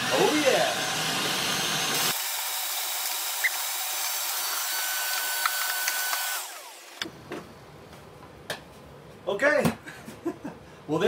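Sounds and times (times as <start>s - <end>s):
shop vacuum running: 0.0s - 7.4s.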